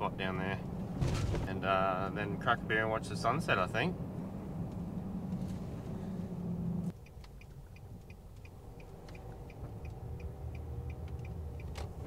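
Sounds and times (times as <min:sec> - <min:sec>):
vehicle cabin drone: 0:00.0 - 0:12.0
turn indicator ticking: 0:06.9 - 0:12.0.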